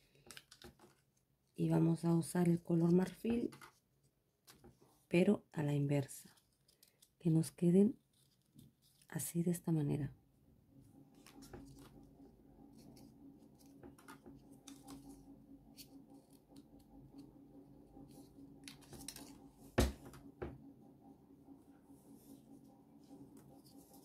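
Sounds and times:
paper rustling and ticking: 0.0s - 1.3s, 6.3s - 7.2s, 11.2s - 12.1s, 12.8s - 15.2s, 18.6s - 19.4s
knock on a table: 19.8s - 20.6s.

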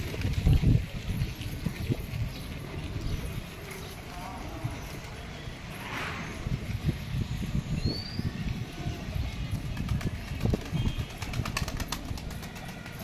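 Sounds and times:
pigeons flapping wings: 0.0s - 1.1s, 9.5s - 13.0s
wind buffeting microphone: 0.0s - 12.6s.

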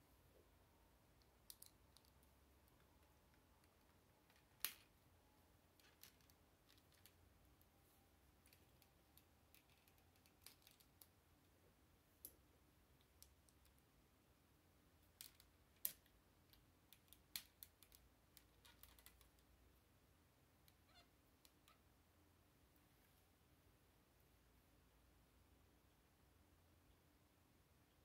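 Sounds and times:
plastic bricks clicking together: 1.4s - 2.9s, 8.4s - 11.1s, 15.1s - 19.4s.

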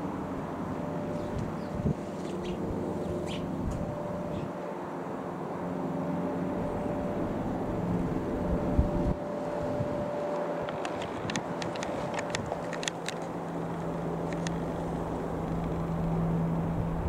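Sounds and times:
light aircraft engine droning: 0.0s - 17.0s
wind buffeting microphone: 1.1s - 4.6s, 6.6s - 17.0s.

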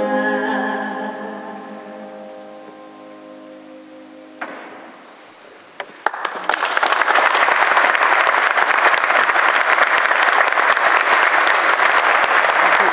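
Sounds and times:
audience applause: 5.9s - 12.9s.

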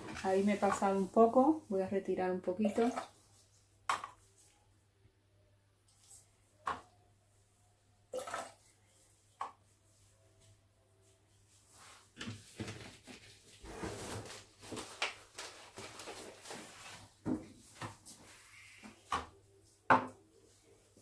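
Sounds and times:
water pouring: 2.6s - 3.2s, 8.1s - 8.6s.

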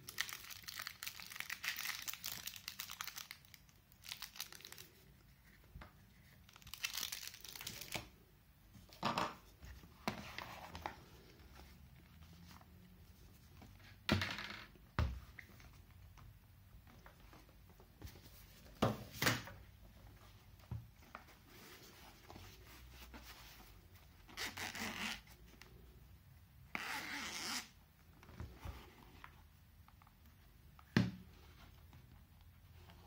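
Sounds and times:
zipper unzipping: 26.8s - 27.7s.

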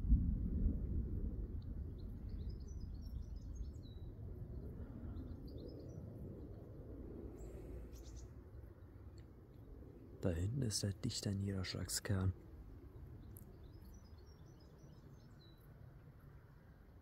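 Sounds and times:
distant thunder rumble: 0.0s - 3.3s
small birds chirping: 2.0s - 6.6s, 7.4s - 9.0s, 13.1s - 15.8s.

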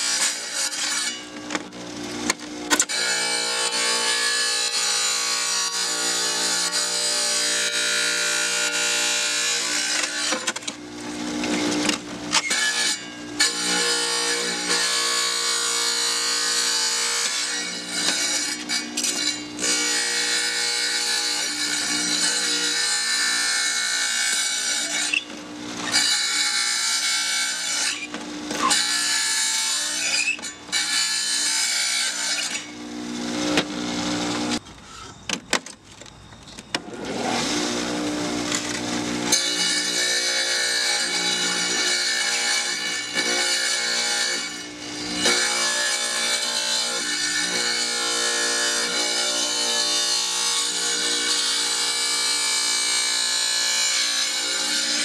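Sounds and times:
tile saw motor running: 0.0s - 34.6s
blade grinding through glass: 29.7s - 31.5s.

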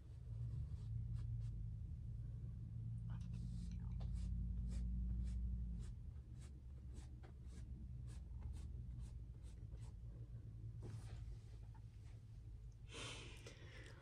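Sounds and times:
low steady hum: 0.0s - 14.0s
paintbrush strokes on canvas: 3.3s - 9.8s.

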